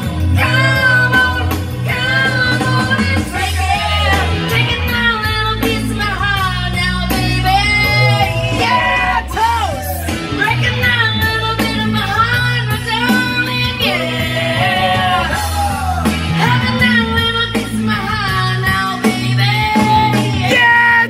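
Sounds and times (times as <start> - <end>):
held bass notes: 0.0 - 21.0
instrumental backing: 0.0 - 21.0
person singing rock song: 0.0 - 21.0.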